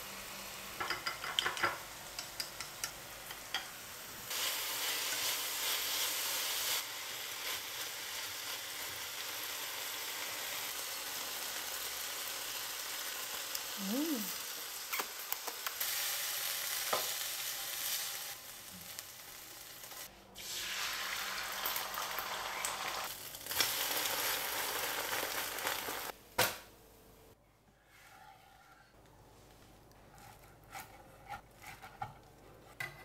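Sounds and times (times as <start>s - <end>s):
egg sizzling in a pan: 0.0s - 26.2s
food sizzling in a frying pan: 0.0s - 26.2s.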